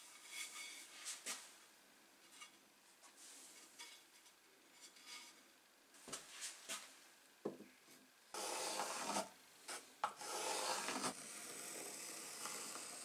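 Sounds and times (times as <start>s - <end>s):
pencil scratching on wood: 8.4s - 9.3s, 10.1s - 13.0s.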